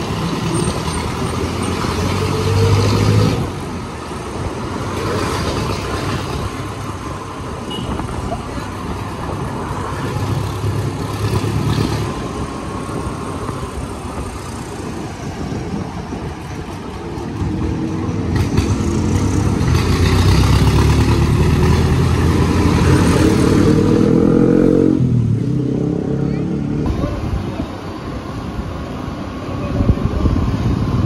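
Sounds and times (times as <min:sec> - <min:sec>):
wind on microphone: 0:00.0 - 0:20.0, 0:21.8 - 0:31.0
scooter engine and road rumble: 0:00.0 - 0:31.0
engine revving rising pitch: 0:18.7 - 0:26.9.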